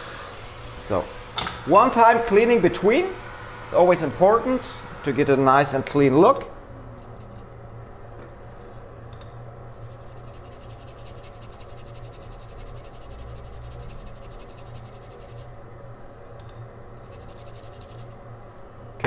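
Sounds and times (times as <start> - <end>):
steady low hum: 0.0 - 19.0
small brush scrubbing: 9.7 - 15.5, 17.0 - 18.2.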